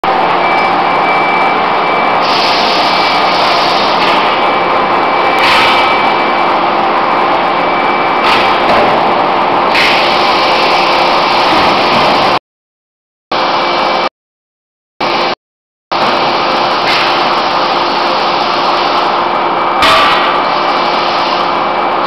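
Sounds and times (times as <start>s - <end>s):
thin steady whine: 0.0s - 12.4s.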